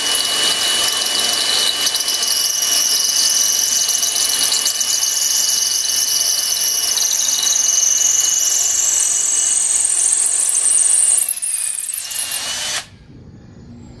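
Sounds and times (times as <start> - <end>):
drill boring into concrete: 0.0 - 12.9.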